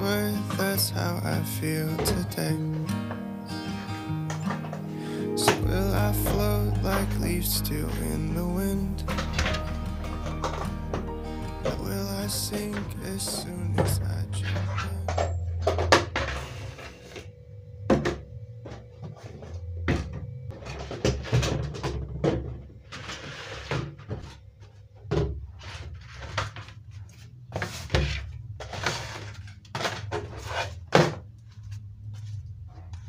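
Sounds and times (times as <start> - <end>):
low steady hum: 4.8 - 23.2
scraping and rustling: 20.5 - 33.0.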